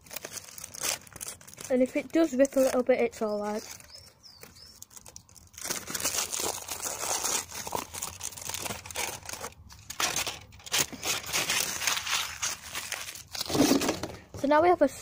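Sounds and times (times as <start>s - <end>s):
foil crinkling and tearing: 0.0s - 14.1s.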